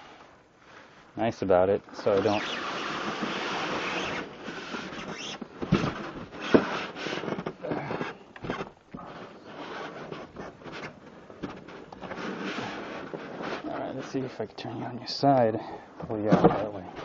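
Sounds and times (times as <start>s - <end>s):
cardboard packaging scraping: 1.9s - 14.4s.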